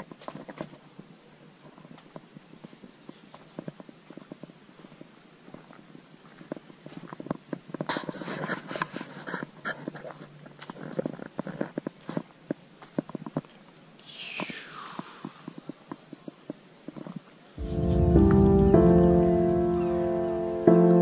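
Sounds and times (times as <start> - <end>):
footsteps crunching on gravel: 1.6 - 13.4.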